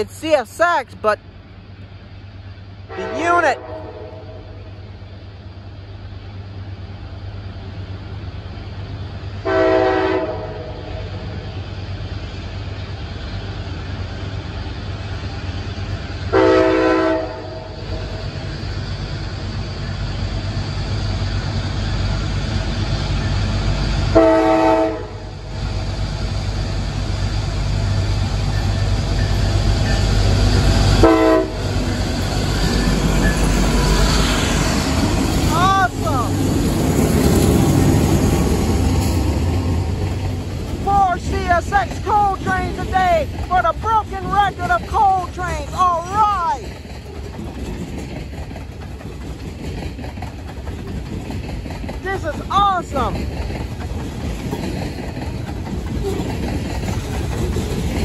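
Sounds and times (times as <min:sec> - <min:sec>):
diesel train rumble: 0:00.0 - 0:58.0
locomotive air horn blasts: 0:02.9 - 0:04.5, 0:09.4 - 0:11.0, 0:16.3 - 0:17.7, 0:24.2 - 0:25.3, 0:31.0 - 0:31.6.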